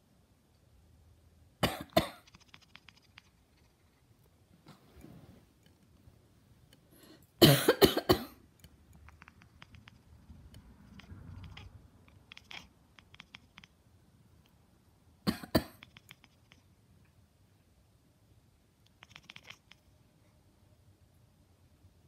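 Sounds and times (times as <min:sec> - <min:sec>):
person coughing: 0:01.6 - 0:02.2, 0:07.4 - 0:08.4, 0:15.3 - 0:15.8.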